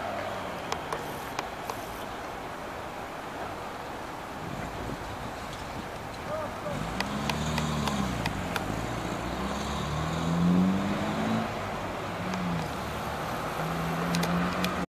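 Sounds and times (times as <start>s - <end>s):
street traffic: 0.0s - 14.9s
sharp clicks: 6.9s - 8.7s, 14.0s - 14.8s.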